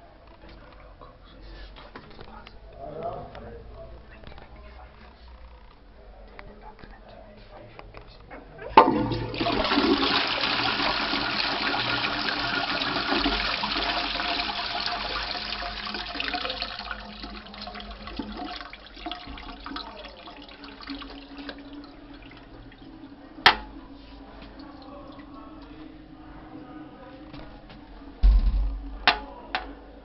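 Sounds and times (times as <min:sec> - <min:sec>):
toilet flushing: 0:08.7 - 0:25.8
toilet seat clacking onto bowl: 0:08.8 - 0:10.2, 0:23.4 - 0:23.8, 0:28.3 - 0:29.8.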